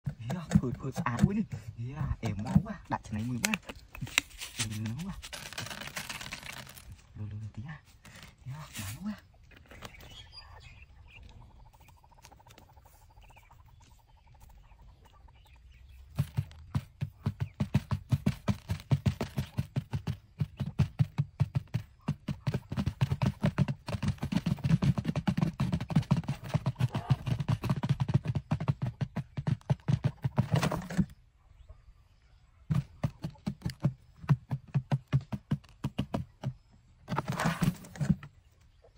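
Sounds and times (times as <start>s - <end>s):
wings flapping: 16.1s - 31.1s.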